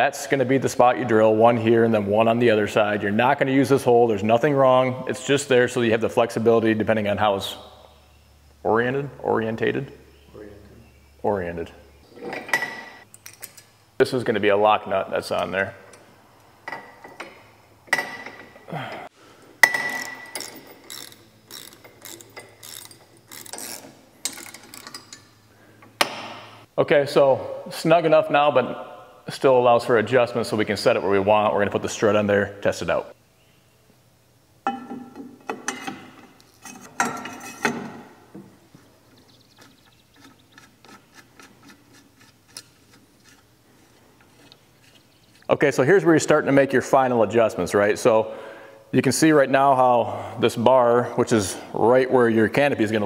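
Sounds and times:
ratchet wrench clicking: 19.9s - 25.2s.

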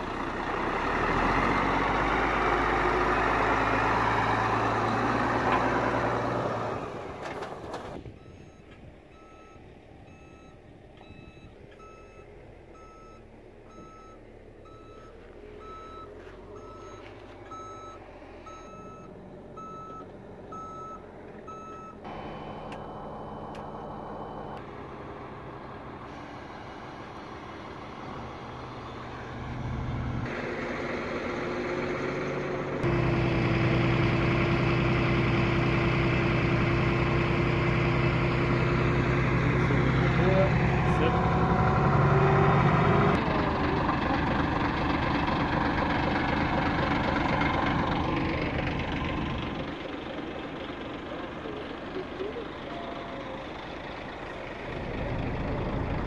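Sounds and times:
diesel engine running: 0.0s - 56.0s
reversing alarm beeping: 8.2s - 24.6s.

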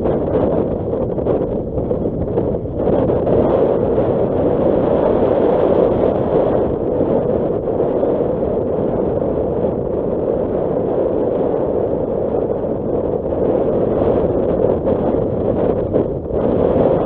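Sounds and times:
wind: 0.0s - 17.0s.

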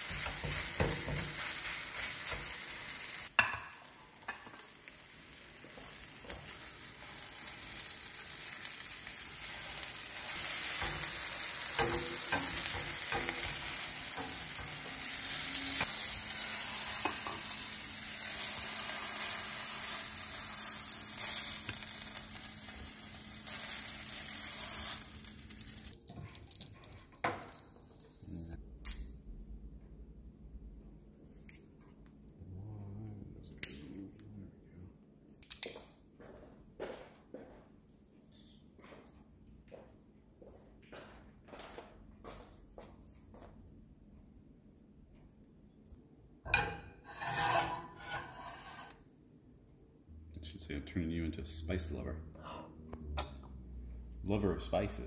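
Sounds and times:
spatula stirring and scraping pan: 0.0s - 4.8s, 5.4s - 26.4s, 46.5s - 49.0s
eggs sizzling in a frying pan: 0.0s - 28.2s.

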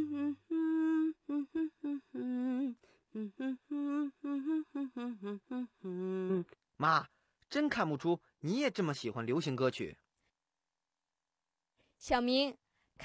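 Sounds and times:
woman humming: 0.0s - 6.6s.

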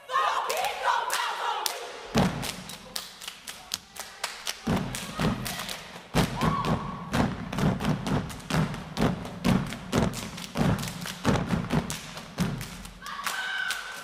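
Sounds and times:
hand claps: 0.5s - 6.6s, 7.6s - 14.0s
foot stomps: 6.1s - 12.8s
heavy low stomps: 6.1s - 12.8s.

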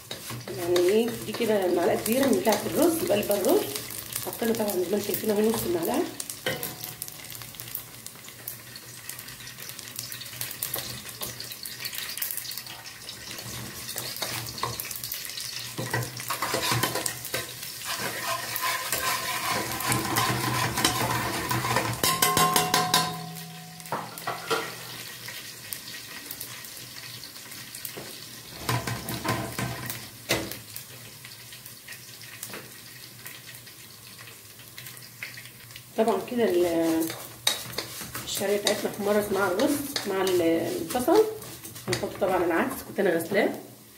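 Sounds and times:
spoon stirring in a pot: 0.0s - 5.7s, 15.8s - 24.8s, 36.5s - 42.9s
food sizzling in a pot: 0.0s - 43.9s
utensils knocking against pots: 18.6s - 24.7s.

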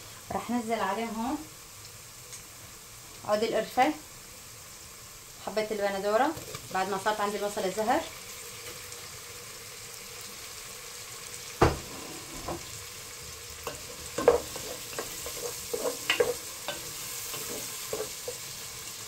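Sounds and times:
vegetables sizzling in oil: 0.0s - 19.0s
wooden spoon scraping pot: 11.7s - 12.7s.

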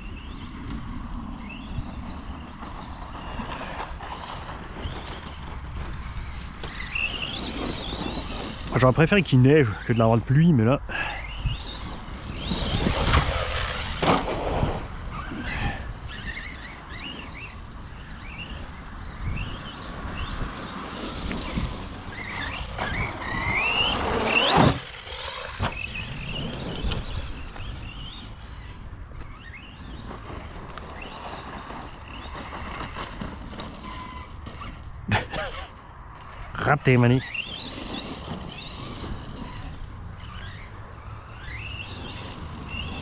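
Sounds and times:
electric motor whining: 18.2s - 34.9s.

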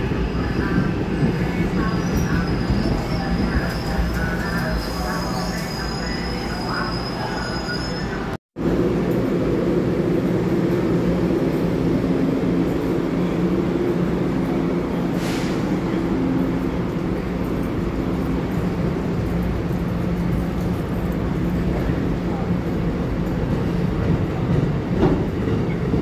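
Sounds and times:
passenger train rumbling past: 0.0s - 26.0s
train hiss: 15.0s - 16.0s.

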